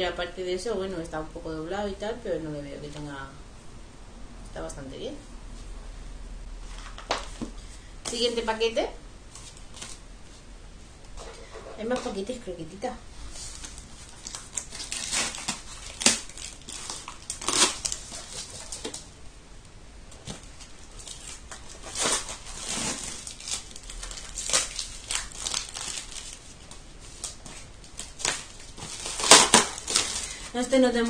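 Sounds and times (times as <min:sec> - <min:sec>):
paper wrapping crumpled: 0:13.3 - 0:19.1, 0:20.2 - 0:31.0
paper parcel being torn open: 0:13.4 - 0:19.0, 0:20.2 - 0:31.0.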